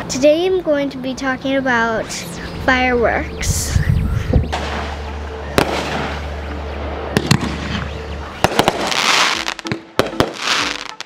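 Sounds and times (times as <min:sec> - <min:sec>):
firework bangs: 0:04.5 - 0:05.0, 0:05.6 - 0:06.3, 0:07.2 - 0:11.0
firework crackle: 0:08.4 - 0:11.0.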